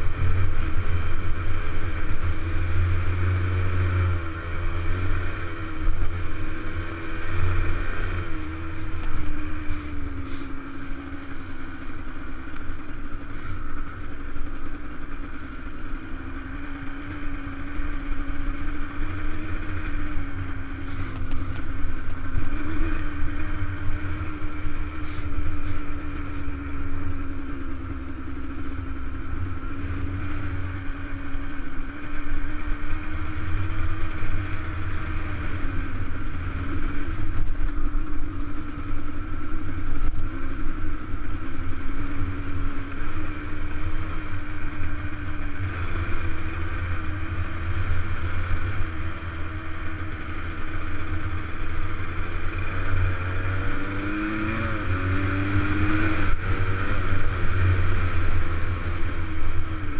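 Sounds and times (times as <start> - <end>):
wind rumble on microphone: 0.0 - 10.2
dirt bike engine cruising: 0.0 - 59.9.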